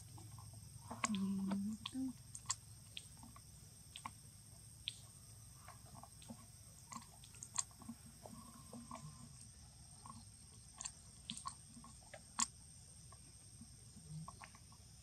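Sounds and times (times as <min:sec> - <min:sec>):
low steady background hum: 0:00.0 - 0:15.0.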